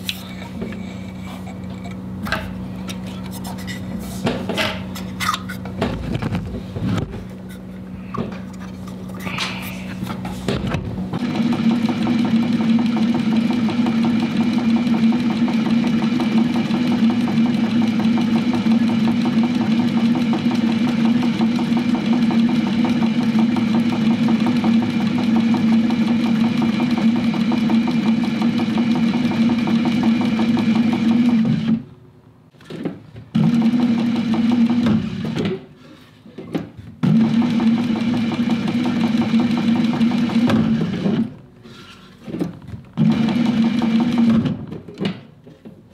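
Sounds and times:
sewing machine stitching: 11.2 - 31.8, 33.3 - 35.6, 37.0 - 41.4, 43.0 - 44.7.

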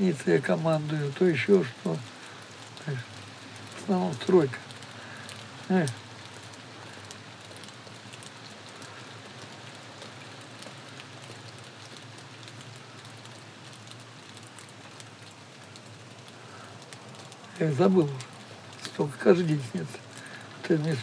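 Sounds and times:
light rain pattering: 0.0 - 21.0.

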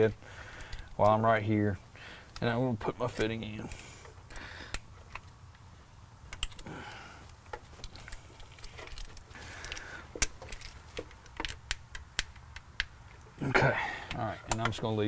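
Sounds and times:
metallic tool clicks and taps: 11.0 - 13.2, 14.1 - 14.8.

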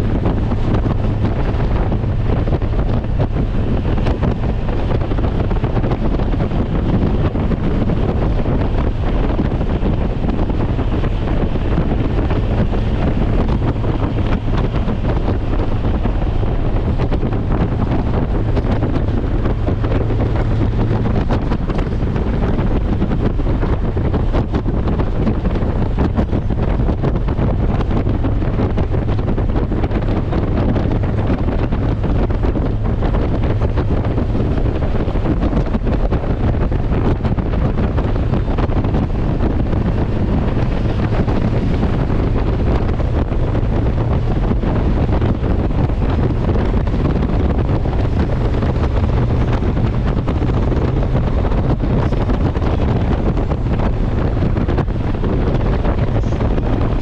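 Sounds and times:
motorcycle engine and tyres drone: 0.0 - 57.0
wind rush on microphone: 0.0 - 57.0.

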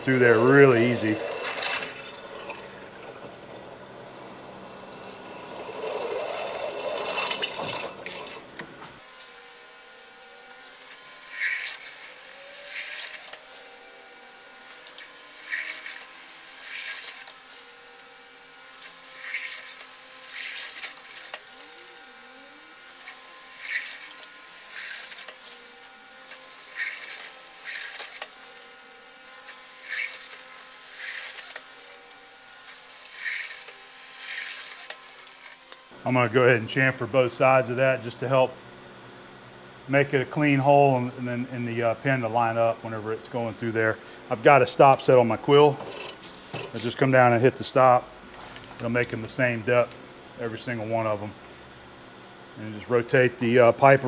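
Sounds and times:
drill bit cutting steel: 0.0 - 3.2, 4.0 - 8.4, 9.0 - 35.9.

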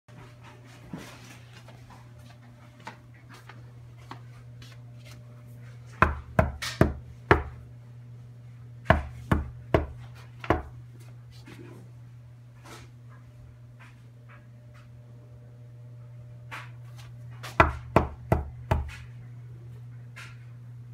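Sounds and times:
steady low hum: 0.1 - 20.9
knocking on a door: 6.0 - 7.6, 8.9 - 10.7, 17.6 - 18.9.

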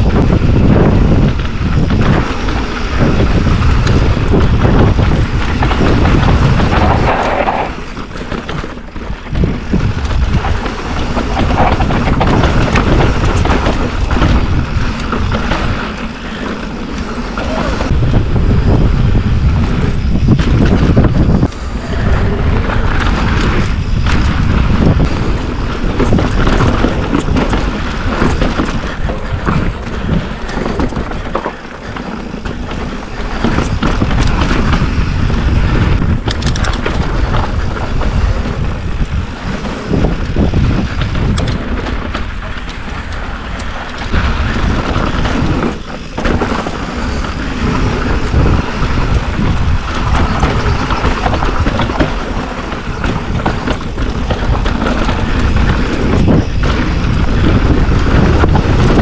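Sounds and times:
tyres rolling over dirt and rocks: 0.0 - 59.0
wind buffeting microphone: 0.0 - 59.0.

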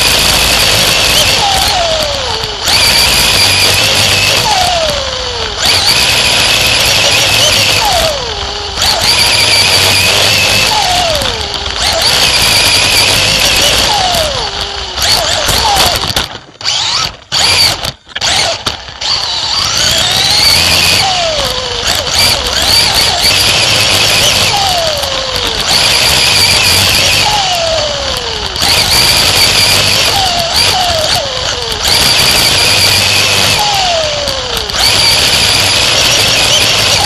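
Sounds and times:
loud wind noise: 0.0 - 37.0
race car engine: 0.0 - 37.0.

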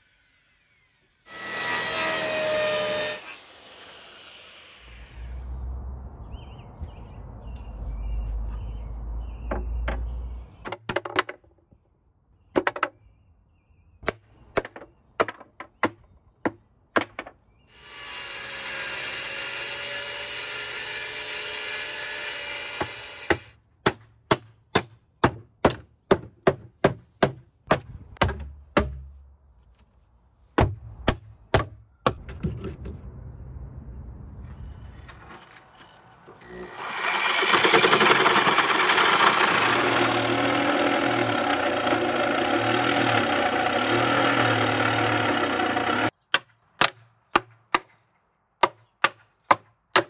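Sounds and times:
hammer striking nails in wood: 22.8 - 29.2
power tool running: 36.4 - 46.1.

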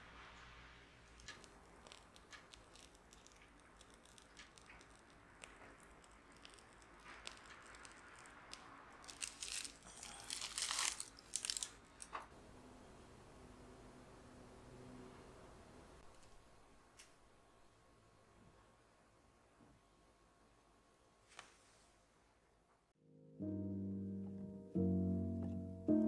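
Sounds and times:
piping bag crinkling: 1.0 - 12.2
small clicks: 1.2 - 8.7.

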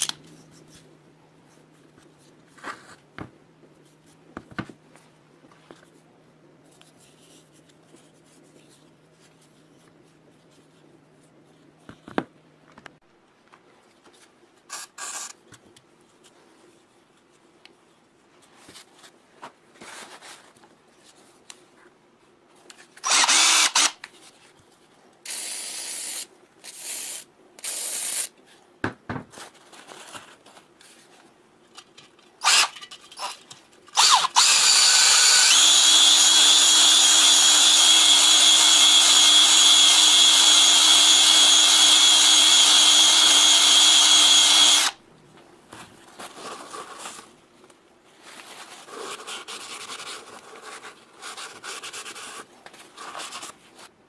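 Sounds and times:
cordless drill honing: 23.0 - 23.9, 32.4 - 33.3, 34.0 - 45.0.

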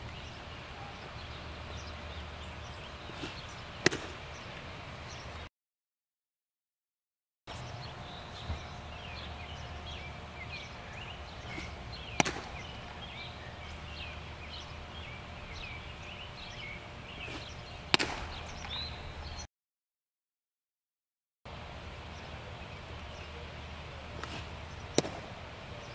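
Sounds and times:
birds chirping: 0.0 - 5.5, 7.5 - 19.5, 21.5 - 25.9
low steady hum: 0.0 - 5.5, 7.5 - 19.5
baseball smacking into glove: 3.2 - 4.2, 11.5 - 13.1, 17.2 - 18.8, 24.2 - 25.3.

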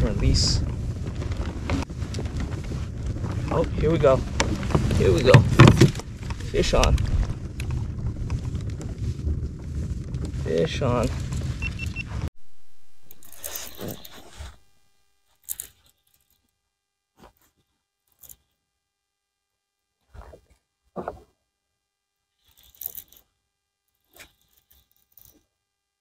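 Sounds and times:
fishing reel handling rustle: 13.0 - 14.6, 15.3 - 16.5, 18.1 - 18.5, 22.4 - 23.2, 24.0 - 25.4.

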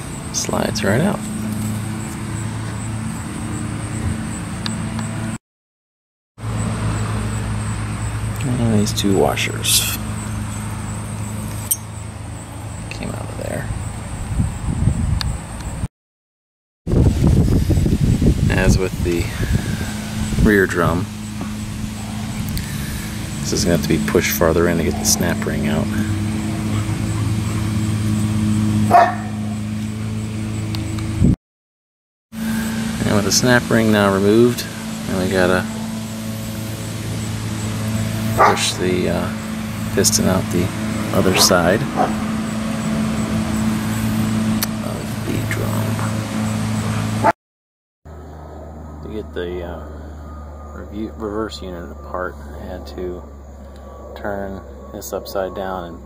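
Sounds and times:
motor humming: 16.9 - 31.4, 32.4 - 47.3
dog bark: 28.9 - 29.4, 38.4 - 38.7, 41.4 - 42.2.

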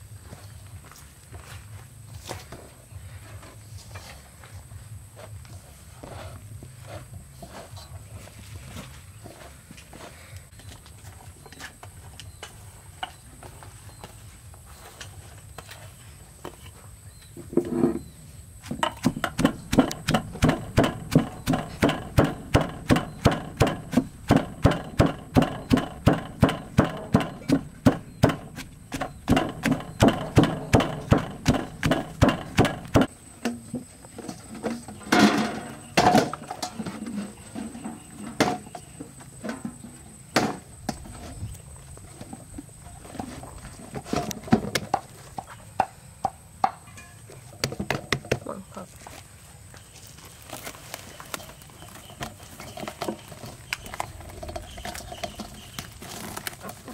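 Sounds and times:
stone pestle pounding in mortar: 18.8 - 33.1.

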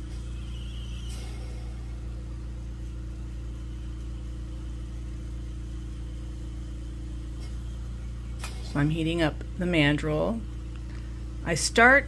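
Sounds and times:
torch hissing: 0.0 - 3.0
low mechanical hum: 0.0 - 12.0.

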